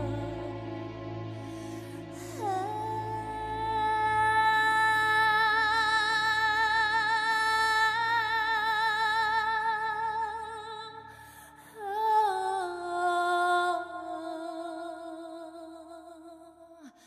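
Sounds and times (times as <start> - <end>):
woman singing long note: 0.0 - 1.5, 2.2 - 10.9
low sustained drone: 0.0 - 12.0.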